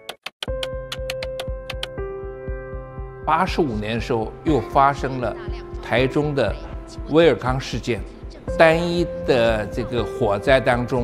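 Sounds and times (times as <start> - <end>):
electronic music: 0.0 - 11.0
sharp ticks: 0.2 - 2.0
drum-machine beat: 0.4 - 3.0.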